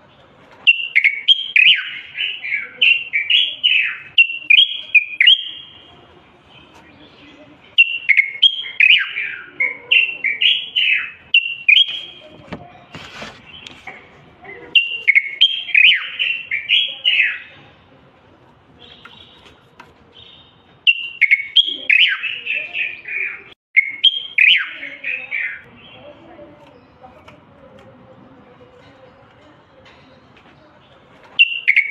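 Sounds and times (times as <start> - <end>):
bird singing whistled phrases: 0.7 - 5.8, 7.8 - 12.2, 14.8 - 17.5, 20.2 - 26.0, 31.4 - 31.9.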